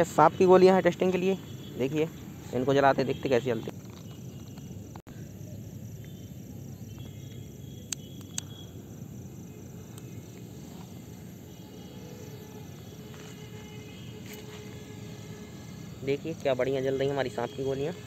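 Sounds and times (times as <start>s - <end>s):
night insects chirping: 0.0s - 18.0s
torch lighter clicks: 7.8s - 8.6s.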